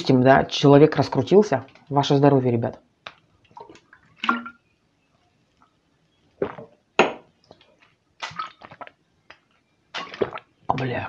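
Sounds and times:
person swallowing: 0:06.4 - 0:06.8, 0:10.0 - 0:10.5
mouth and plastic bottle sounds: 0:06.4 - 0:11.0
shot glass clinking on table: 0:07.0 - 0:07.3.

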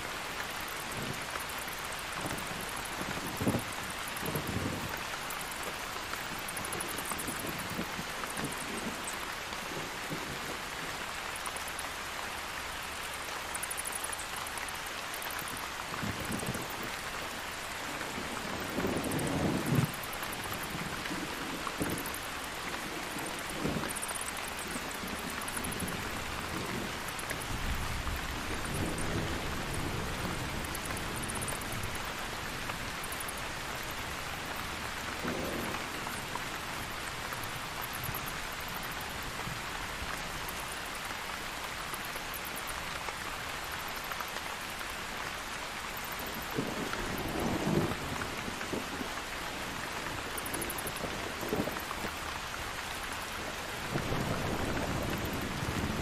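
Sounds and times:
steady rain falling: 0:00.0 - 0:56.0
thunder rumbling: 0:15.9 - 0:36.3, 0:53.5 - 0:56.0.

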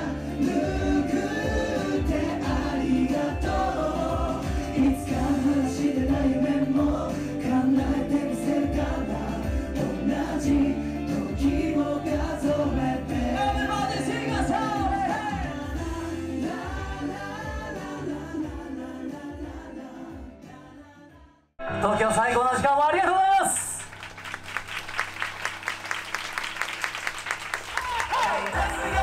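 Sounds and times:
voices singing: 0:00.0 - 0:21.7, 0:28.1 - 0:29.0
backing music: 0:00.0 - 0:22.9, 0:23.7 - 0:29.0.

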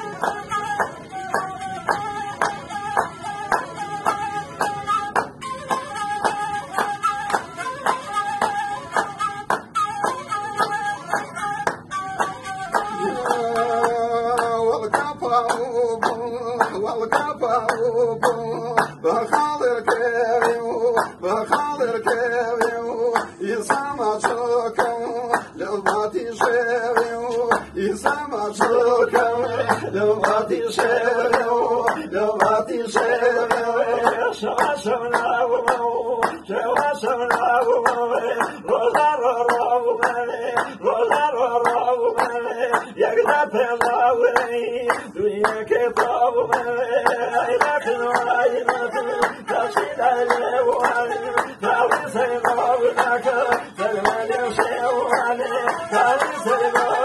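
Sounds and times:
group clapping a beat: 0:00.0 - 0:57.0
man singing folk song: 0:12.9 - 0:57.0.

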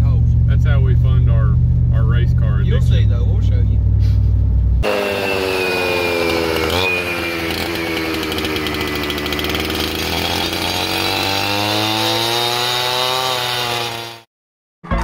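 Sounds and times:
earth auger engine boring: 0:04.8 - 0:14.3.

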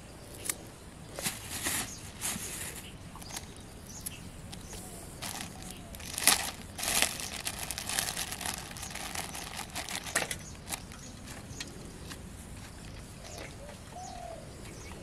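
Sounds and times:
plastic packet crinkling: 0:04.5 - 0:11.0.

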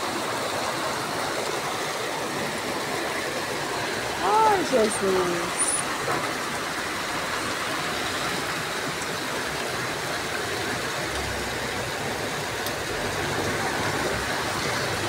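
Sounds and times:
heavy rain: 0:00.0 - 0:15.0
runoff water rushing: 0:00.0 - 0:15.0.

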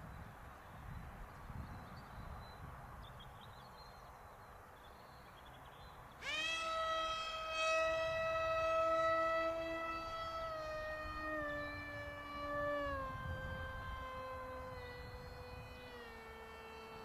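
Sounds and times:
model plane motor whine: 0:06.2 - 0:17.0.

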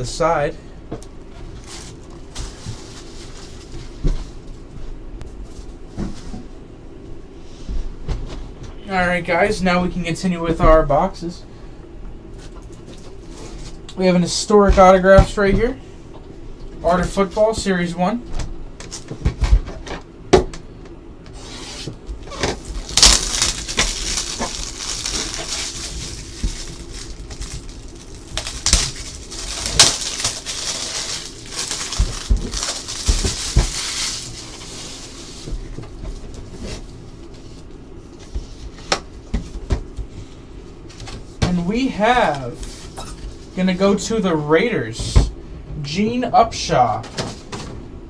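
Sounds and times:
plastic wrapper rustling: 0:01.4 - 0:04.0, 0:22.2 - 0:35.5.

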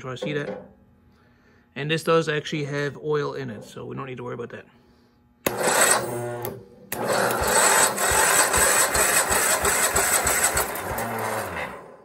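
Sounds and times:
engine cranking by electric starter: 0:05.4 - 0:12.0.

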